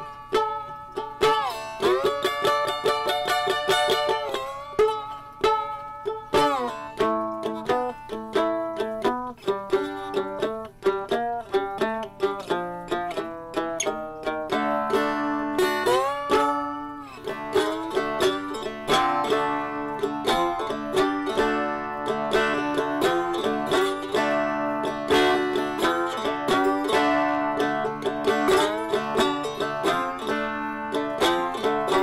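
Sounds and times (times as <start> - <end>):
plucked strings playing quick tune: 0.0 - 32.0.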